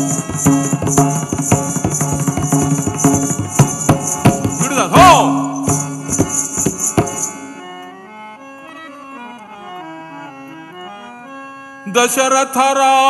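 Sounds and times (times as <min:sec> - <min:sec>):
drum: 0:00.0 - 0:07.4
jingling bells: 0:00.0 - 0:08.0
harmonium melody: 0:00.0 - 0:13.0.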